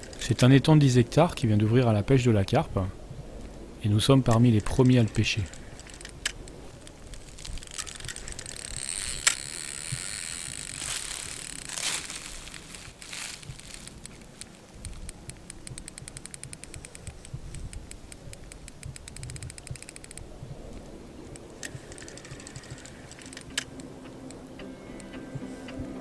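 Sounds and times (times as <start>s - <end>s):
fishing reel clicking: 4.3s - 12.8s, 13.6s - 20.3s, 21.3s - 24.4s
music: 23.4s - 26.0s.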